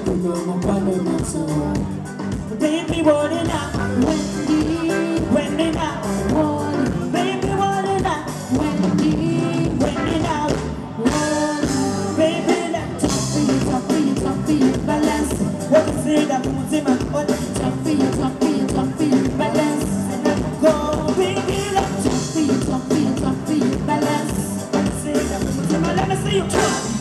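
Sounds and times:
woman singing into a microphone: 0:00.0 - 0:26.6
live band playing dance music: 0:00.0 - 0:27.0.

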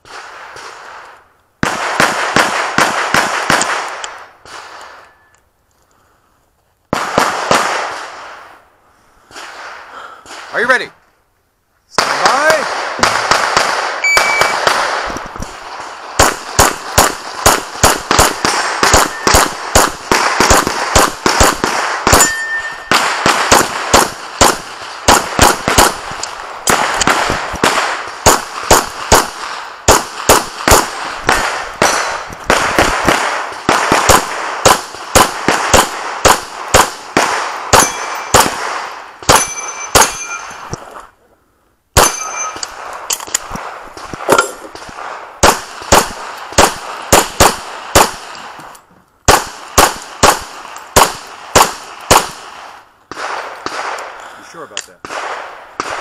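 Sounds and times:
rapid handgun fire: 0:01.6 - 0:05.0, 0:06.9 - 0:08.5, 0:12.0 - 0:40.7, 0:42.0 - 0:48.6, 0:49.2 - 0:54.4, 0:55.0 - 0:56.0
ringing steel targets: 0:04.8 - 0:05.4, 0:14.0 - 0:14.7, 0:18.4 - 0:19.7, 0:22.1 - 0:23.1, 0:37.7 - 0:40.9, 0:42.0 - 0:42.9.

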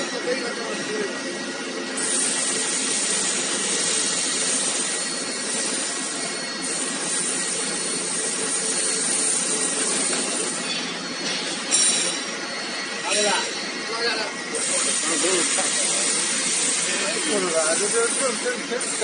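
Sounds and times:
hydraulic hiss with whine: 0:00.0 - 0:19.0.

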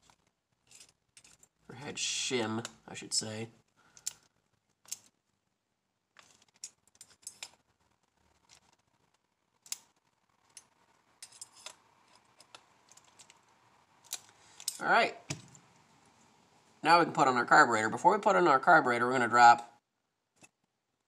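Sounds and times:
light metallic clicks of tools: 0:14.0 - 0:14.8.

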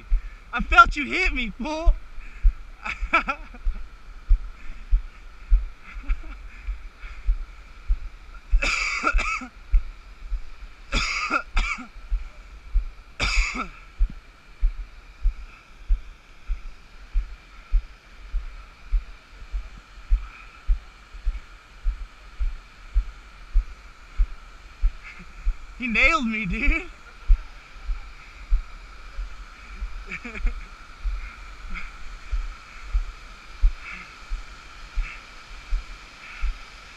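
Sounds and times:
rushing water: 0:00.0 - 0:36.9
cough-like bursts: 0:08.6 - 0:09.5, 0:10.9 - 0:11.9, 0:13.2 - 0:13.8.

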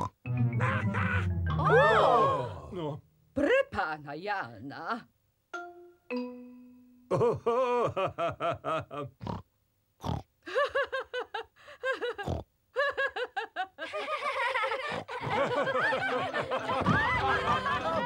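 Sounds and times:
cartoon pigs laughing: 0:11.9 - 0:18.0.

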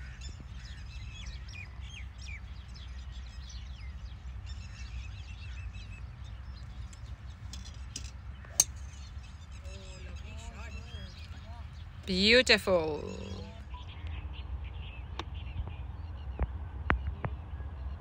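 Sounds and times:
small birds chirping: 0:00.0 - 0:18.0
golf club striking ball: 0:06.8 - 0:09.1.

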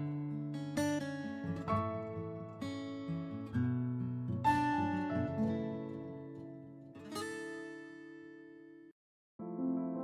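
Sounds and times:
piano tune: 0:09.4 - 0:10.0.

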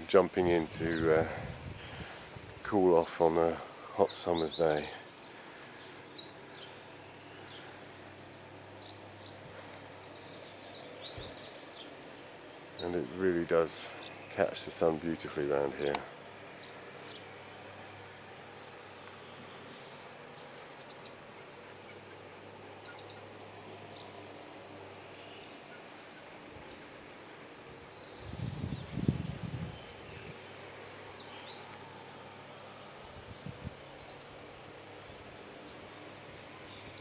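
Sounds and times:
small birds chirping: 0:00.0 - 0:37.0
low rumble on microphone: 0:00.8 - 0:02.7, 0:28.2 - 0:31.2, 0:33.1 - 0:33.8.

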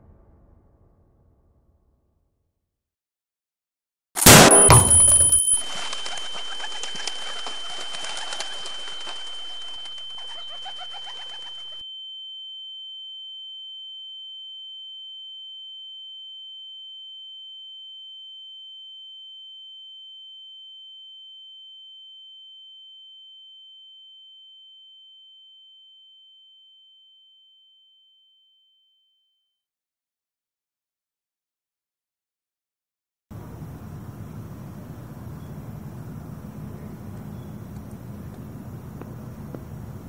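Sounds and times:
high-pitched ringing tone: 0:04.2 - 0:29.2.

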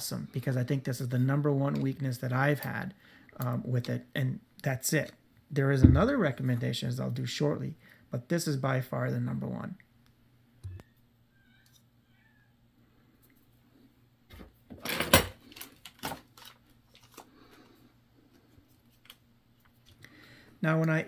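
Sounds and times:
faint low hum: 0:00.0 - 0:14.7
panel thump: 0:05.8 - 0:06.1.

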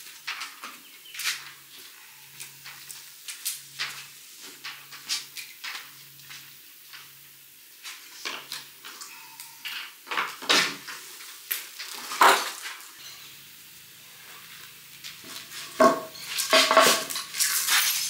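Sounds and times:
metallic ring: 0:09.1 - 0:09.8, 0:13.0 - 0:13.4, 0:15.9 - 0:18.0
metal tools clinking and clattering: 0:15.7 - 0:18.0.

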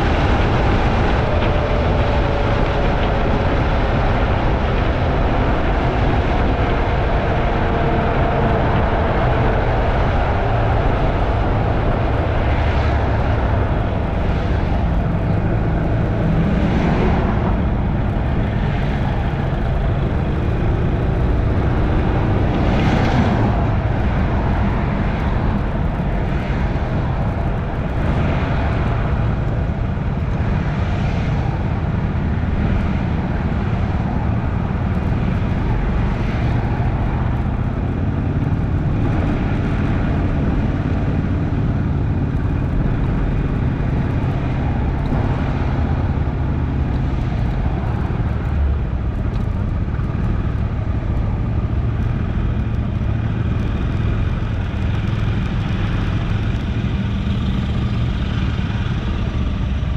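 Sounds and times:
road noise: 0:00.0 - 0:59.9
wind noise: 0:00.0 - 0:59.9.

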